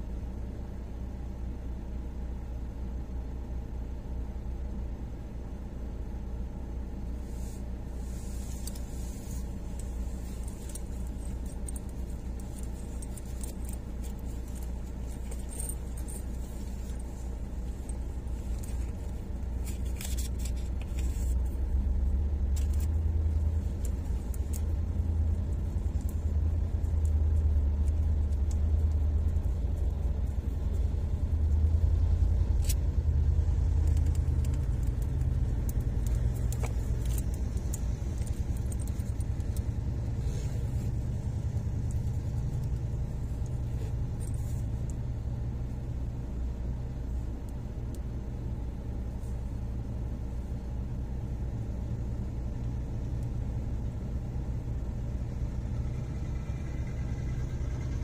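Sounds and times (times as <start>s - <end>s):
diesel truck engines rumbling: 0.0s - 58.0s
faint rattles and clanks: 7.9s - 46.0s.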